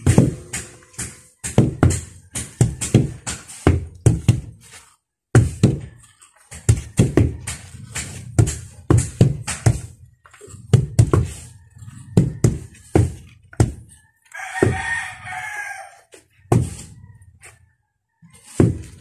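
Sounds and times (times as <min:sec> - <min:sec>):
wooden tampers thudding on soil: 0:00.0 - 0:17.6, 0:18.3 - 0:19.0
rooster crowing: 0:11.2 - 0:17.6.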